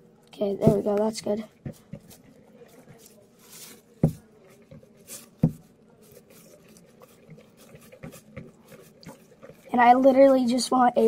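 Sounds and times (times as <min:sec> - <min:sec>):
stick stirring wet slime: 0:00.3 - 0:11.0
stick knocking against plastic bowl: 0:00.6 - 0:03.1, 0:04.0 - 0:05.7.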